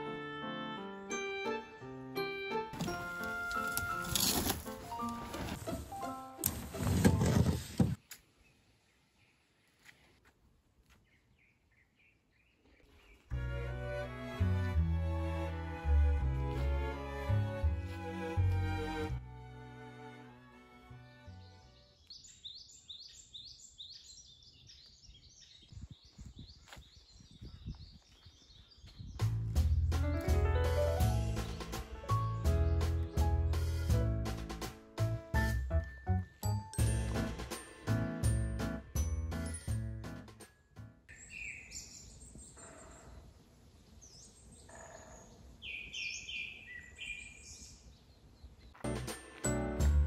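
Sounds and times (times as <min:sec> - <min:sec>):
faint outdoor background: 0:00.0 - 0:50.0
bird chirping: 0:21.4 - 0:29.3, 0:41.1 - 0:48.8
birds chirping: 0:41.1 - 0:48.9.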